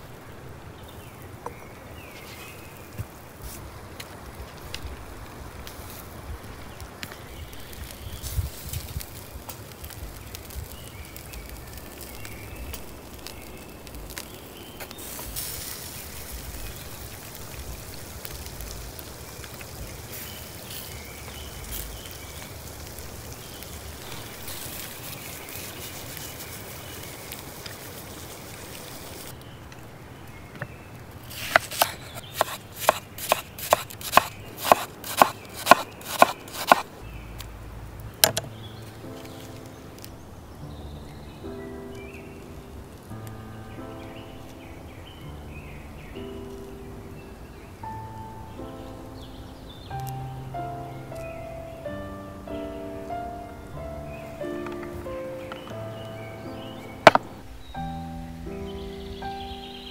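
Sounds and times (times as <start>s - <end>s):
faint background hiss: 0.0s - 59.9s
knife chopping on wooden board: 31.4s - 36.8s.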